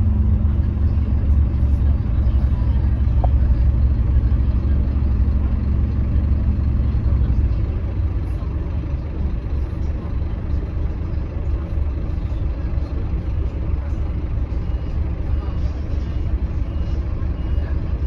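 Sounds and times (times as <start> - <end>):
bus diesel engine rumble: 0.0 - 18.0.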